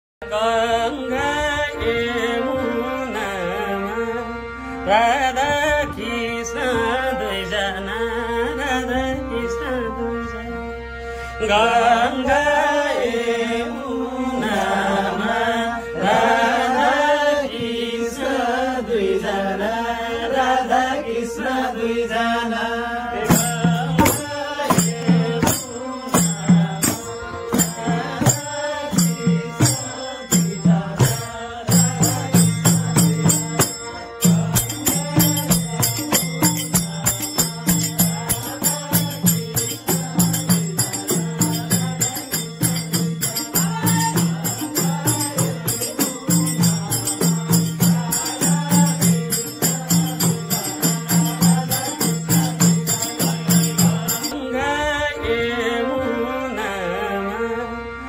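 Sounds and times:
men singing devotional song: 0:00.2 - 0:58.0
held drone note: 0:00.4 - 0:58.0
percussion beat: 0:23.2 - 0:54.4.

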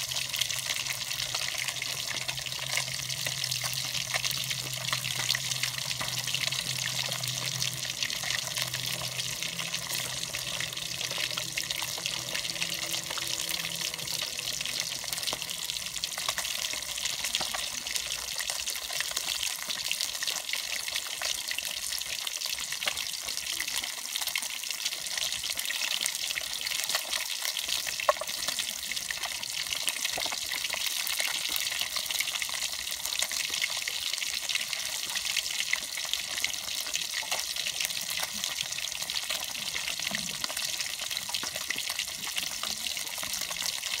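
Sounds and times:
water running into a basin: 0:00.0 - 0:19.9.

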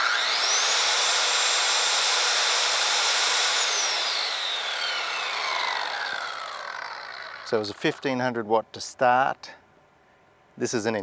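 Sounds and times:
circular saw motor whine: 0:00.0 - 0:08.0.

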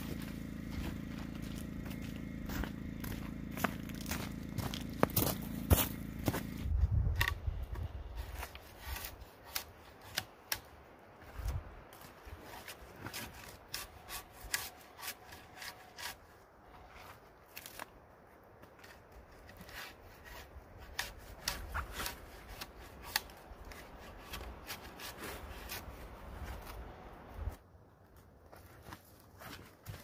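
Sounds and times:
bark being scraped off log: 0:08.2 - 0:10.6, 0:12.4 - 0:17.8, 0:19.4 - 0:26.9.

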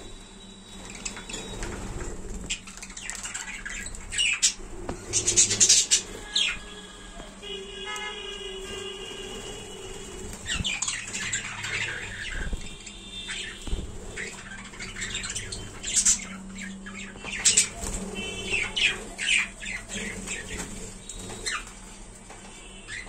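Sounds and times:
budgerigars squawking and chirping: 0:00.8 - 0:06.8, 0:10.3 - 0:21.8.

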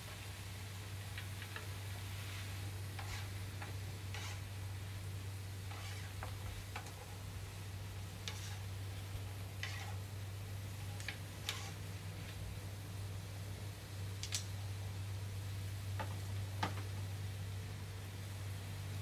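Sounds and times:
steady low hum: 0:00.0 - 0:19.0
tongs clicking and scraping on griddle: 0:02.8 - 0:04.6, 0:05.7 - 0:07.3, 0:08.0 - 0:10.1, 0:10.7 - 0:12.4, 0:14.2 - 0:14.5.

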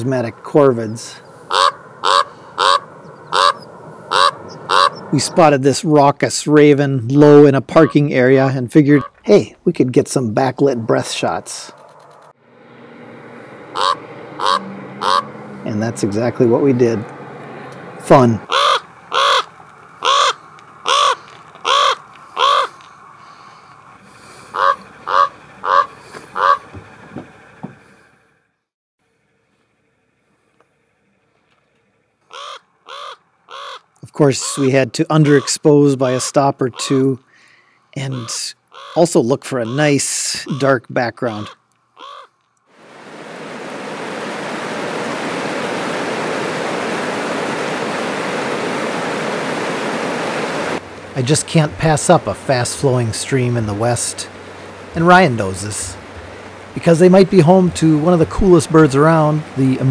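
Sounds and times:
raven cawing: 0:01.2 - 0:05.2, 0:13.4 - 0:15.6, 0:18.4 - 0:26.9, 0:32.2 - 0:35.6, 0:36.8 - 0:39.0, 0:39.6 - 0:42.4
stream rushing over rocks: 0:42.8 - 0:59.9.

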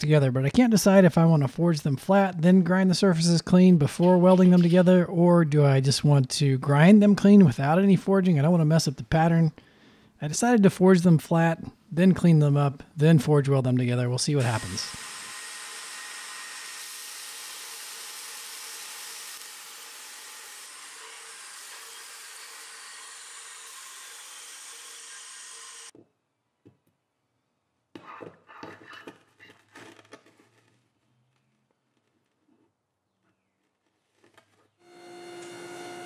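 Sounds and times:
belt grinder grinding steel: 0:14.4 - 0:25.9, 0:34.8 - 0:36.0.

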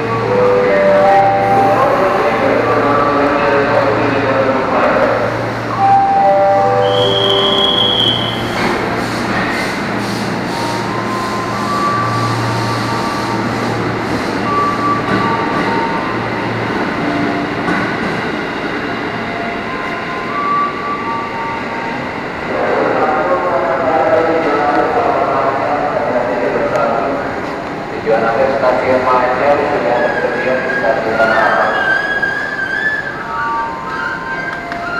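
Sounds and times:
high beep: 0:05.7 - 0:08.6
train wheels and motors rumbling: 0:08.1 - 0:19.2.

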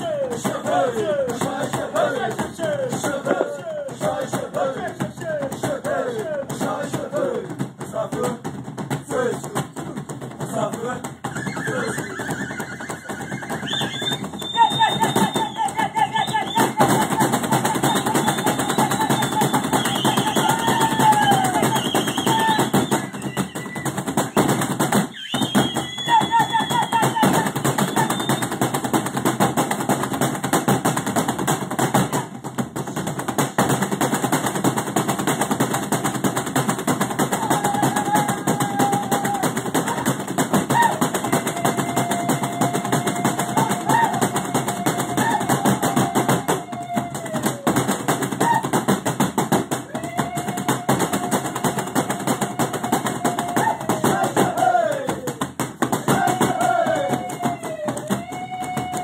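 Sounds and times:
stamping feet: 0:00.0 - 0:12.2
drum beaten in fast rhythm: 0:00.0 - 0:59.0.

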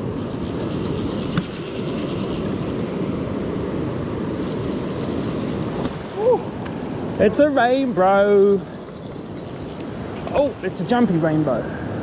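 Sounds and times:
fly reel drag clicking: 0:00.2 - 0:02.6, 0:04.3 - 0:05.9, 0:08.6 - 0:09.9.

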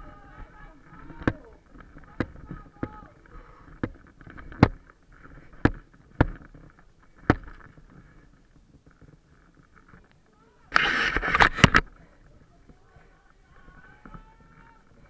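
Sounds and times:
faint voices: 0:00.0 - 0:05.6, 0:09.8 - 0:15.0.

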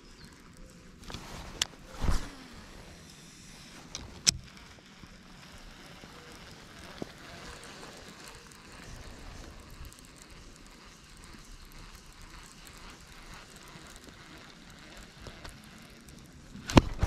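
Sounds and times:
outdoor background hiss: 0:00.0 - 0:17.0
sharp click: 0:16.6 - 0:17.0.

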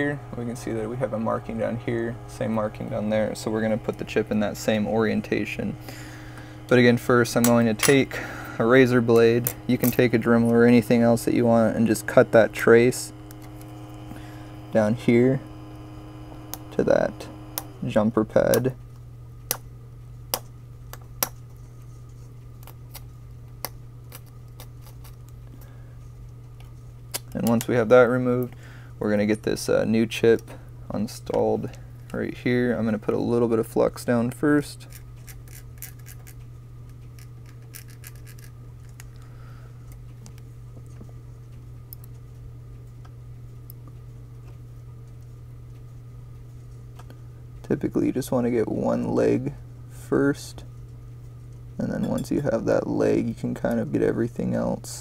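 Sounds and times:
low hum: 0:00.0 - 0:55.0
razor blade scraping: 0:34.8 - 0:36.4, 0:37.1 - 0:38.6.

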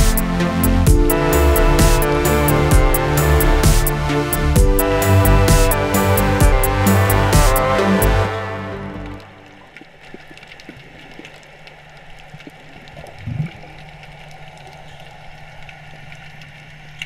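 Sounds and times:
underwater low hum: 0:08.8 - 0:17.0
faint clicks and crackles: 0:09.0 - 0:17.0.

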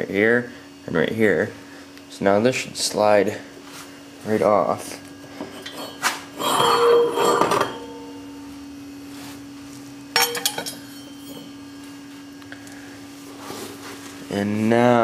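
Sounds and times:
metal scraping and clanking: 0:05.4 - 0:08.1, 0:10.2 - 0:11.6
metal disc clattering down: 0:05.5 - 0:08.2, 0:10.2 - 0:11.5.

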